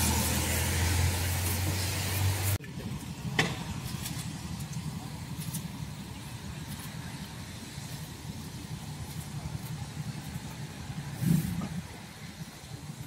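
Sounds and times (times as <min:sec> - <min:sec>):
hiss: 0:00.0 - 0:02.6, 0:06.4 - 0:13.0
low engine rumble: 0:00.0 - 0:13.0.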